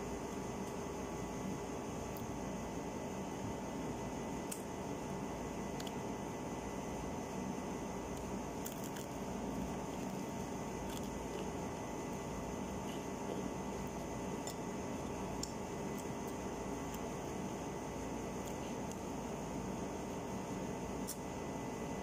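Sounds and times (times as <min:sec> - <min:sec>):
background hum and hiss: 0:00.0 - 0:22.0
chicken being torn and eaten: 0:08.2 - 0:11.6.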